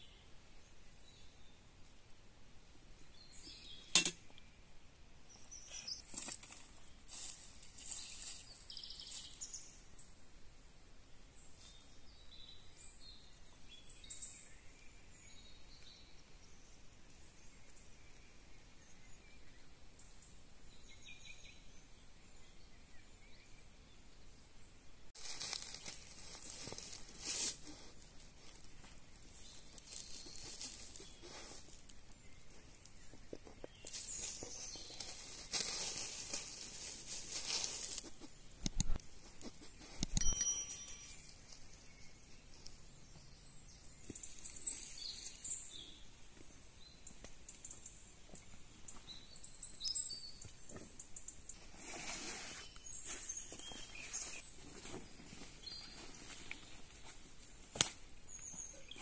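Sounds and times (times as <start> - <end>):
quiet woodland ambience: 0.0 - 59.0
faint bird chirp: 2.8 - 10.2, 11.3 - 57.3, 58.3 - 59.0
rustling in dry leaves: 5.7 - 9.7, 25.2 - 42.9, 51.5 - 59.0.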